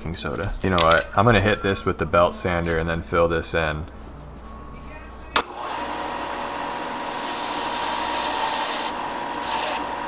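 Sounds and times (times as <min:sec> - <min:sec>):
belt sander motor whine: 0:05.4 - 0:10.0.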